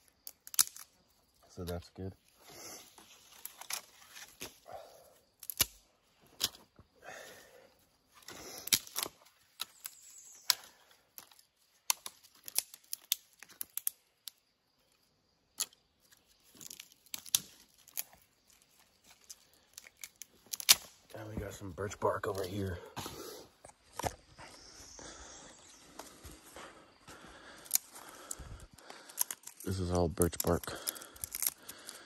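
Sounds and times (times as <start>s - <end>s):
twigs snapping: 0.0s - 1.8s, 2.4s - 4.7s, 5.3s - 6.8s, 8.2s - 14.5s, 15.5s - 21.3s, 27.3s - 32.0s.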